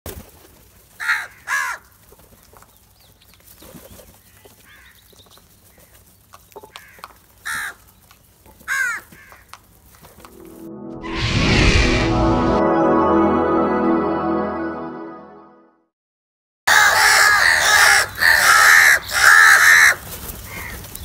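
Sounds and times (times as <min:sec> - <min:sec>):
crows cawing: 0:01.0 - 0:01.9, 0:06.7 - 0:07.8, 0:08.7 - 0:09.5, 0:16.7 - 0:20.8.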